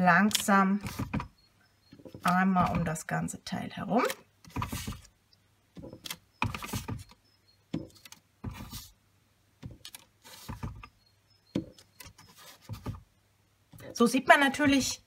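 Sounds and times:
paper rustling: 4.1s - 5.1s, 7.9s - 9.0s, 9.6s - 10.9s, 12.0s - 13.0s.

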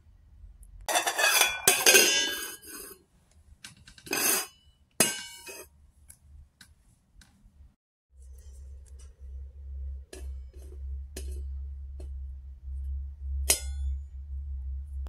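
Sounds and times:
metal pan clanking and scraping: 0.9s - 3.0s, 4.1s - 5.6s.

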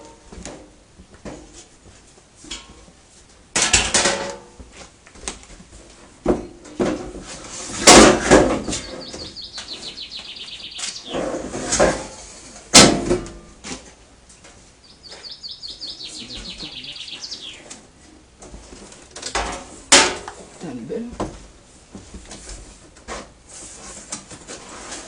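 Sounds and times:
metal panels clattering: 3.5s - 4.6s, 18.6s - 20.8s
loud metal bang: 7.8s - 9.1s, 11.1s - 13.5s
bird trilling: 8.6s - 11.2s, 14.8s - 17.8s.

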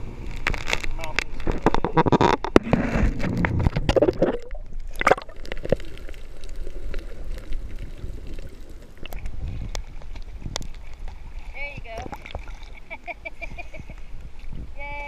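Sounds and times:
underwater rush and bubbling: 0.0s - 13.1s
water splashing: 0.0s - 14.6s
underwater clicks: 0.3s - 11.2s.

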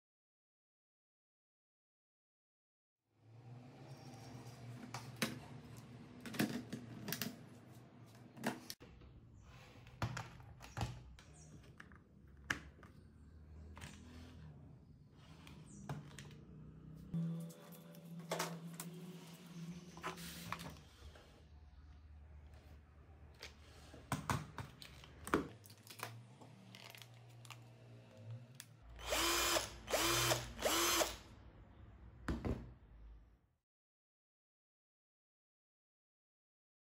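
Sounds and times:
cordless drill motor whining: 28.9s - 31.2s.

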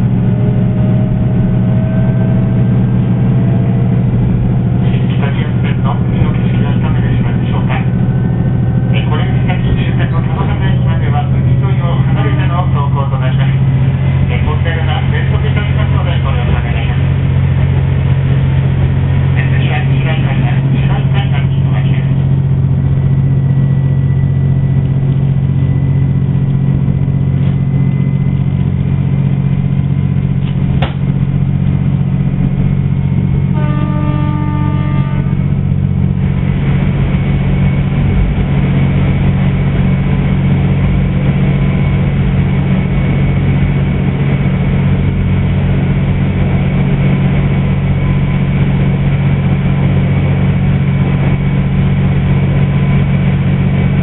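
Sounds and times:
train engine drone: 0.0s - 54.0s
train horn: 0.4s - 4.4s, 33.5s - 35.6s.

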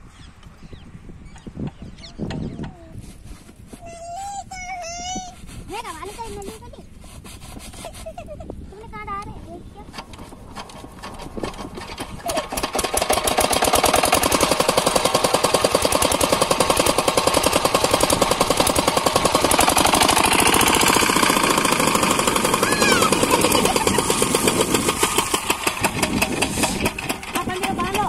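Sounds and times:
diesel engine knocking: 10.6s - 28.0s
water spraying: 12.0s - 28.0s.

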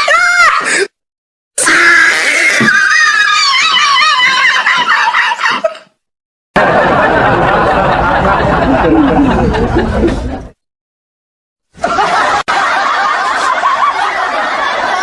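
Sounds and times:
high squealing laugh: 2.3s - 5.9s
lower laughter: 6.6s - 10.6s, 11.8s - 15.0s.

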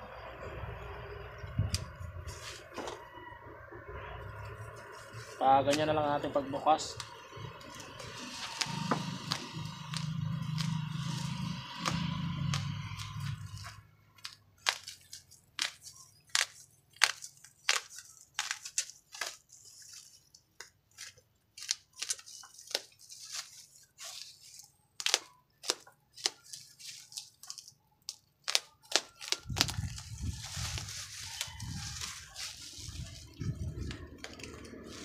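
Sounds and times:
plastic crackling and snapping: 6.9s - 35.0s
knife slicing plastic wrap: 7.8s - 20.1s.

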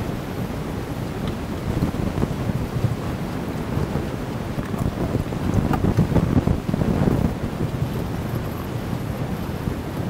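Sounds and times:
wind buffeting microphone: 0.0s - 10.0s.

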